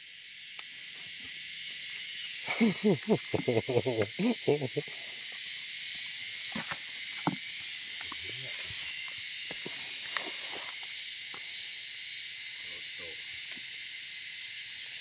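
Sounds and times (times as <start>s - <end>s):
insects chorus: 0.0s - 15.0s
man talking: 2.5s - 5.0s.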